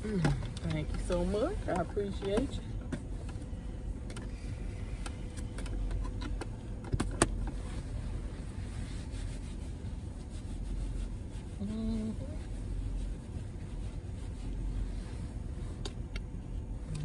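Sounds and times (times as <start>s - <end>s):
car cabin rumble: 0.0s - 10.2s.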